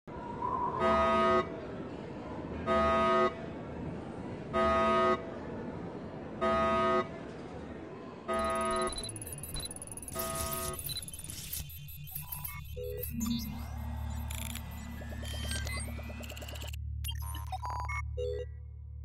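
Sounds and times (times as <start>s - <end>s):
buzzing horn alarm tone: 0.8s - 1.6s, 2.7s - 3.4s, 4.6s - 5.3s, 8.3s - 9.0s.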